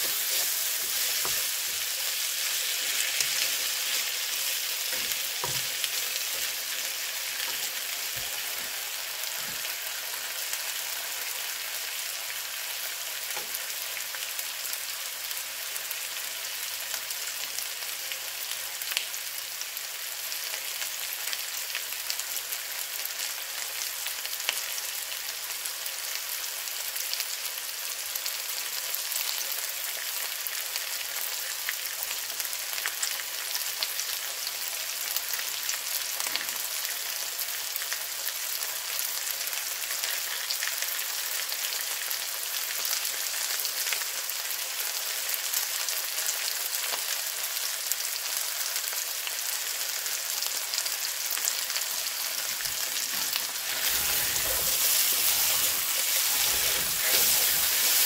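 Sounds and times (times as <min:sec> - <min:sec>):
spatula stirring: 0:00.0 - 0:08.5, 0:52.5 - 0:58.0
vegetables sizzling in a frying pan: 0:00.0 - 0:58.0.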